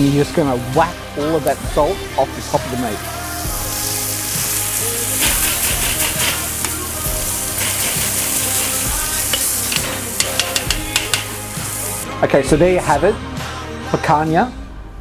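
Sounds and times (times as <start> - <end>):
steaks sizzling on a grill: 0.0 - 12.1
metal tongs tapping and scraping: 7.6 - 11.4.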